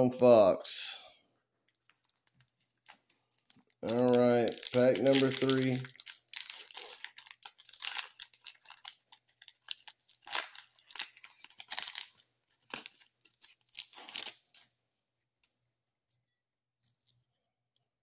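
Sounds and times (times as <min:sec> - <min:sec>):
foil wrapper tearing and crinkling: 0:01.8 - 0:14.6.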